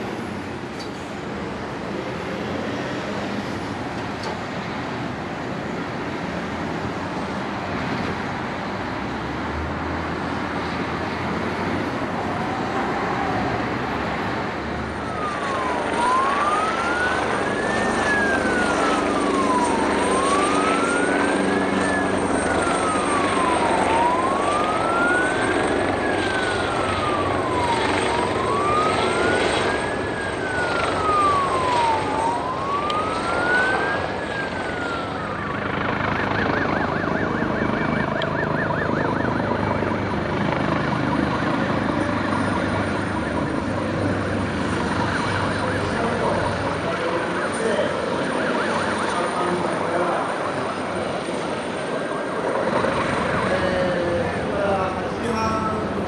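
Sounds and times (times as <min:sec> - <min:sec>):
helicopter flying: 0:00.0 - 0:56.0
siren wailing: 0:00.1 - 0:56.0.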